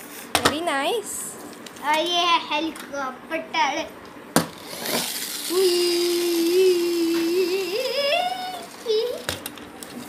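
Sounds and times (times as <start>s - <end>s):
person humming: 5.5s - 9.1s.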